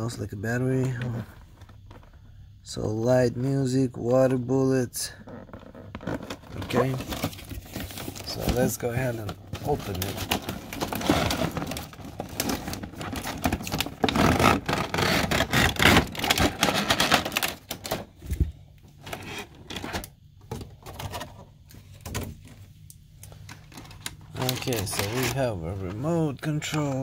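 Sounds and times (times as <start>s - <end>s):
plastic blister cover crinkling: 5.3s - 21.4s, 22.4s - 27.0s
cardboard packaging rustling: 5.3s - 22.6s, 23.2s - 27.0s.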